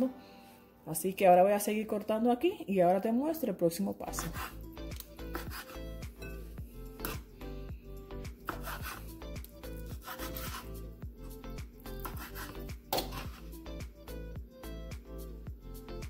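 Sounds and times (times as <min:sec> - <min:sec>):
background music: 0:00.0 - 0:16.0
knife cutting on wooden board: 0:04.1 - 0:04.6, 0:05.2 - 0:05.8, 0:07.0 - 0:07.2, 0:08.4 - 0:09.1, 0:09.9 - 0:10.8, 0:11.9 - 0:13.5.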